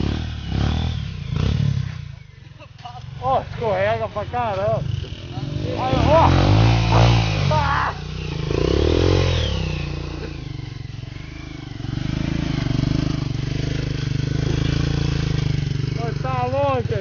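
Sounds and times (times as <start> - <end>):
motorcycle engine revving: 0.0 - 17.0.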